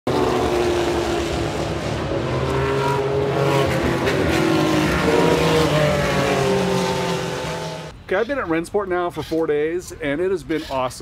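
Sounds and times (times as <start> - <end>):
race car engines at speed: 0.1 - 8.0.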